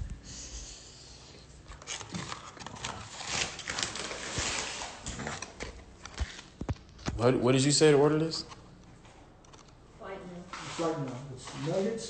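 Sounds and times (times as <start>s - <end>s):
paper packaging rustling: 1.6s - 7.2s.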